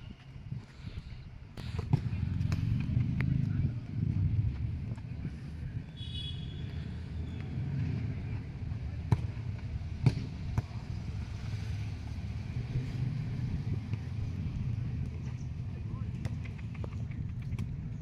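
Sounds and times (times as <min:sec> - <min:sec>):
low outdoor rumble: 0:00.1 - 0:18.0
football being kicked: 0:09.0 - 0:09.4, 0:10.0 - 0:10.8.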